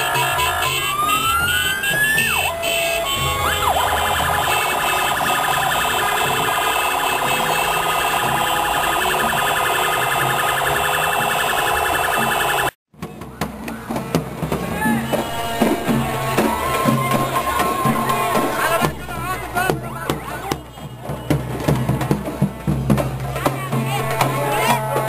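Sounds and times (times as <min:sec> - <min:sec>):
electronic vehicle siren: 0:00.0 - 0:12.8, 0:15.3 - 0:19.8
street noise: 0:00.0 - 0:25.0.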